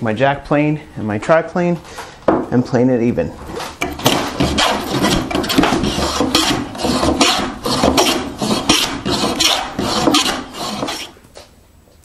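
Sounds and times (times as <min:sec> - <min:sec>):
hand plane shaving wood: 0:03.6 - 0:11.2.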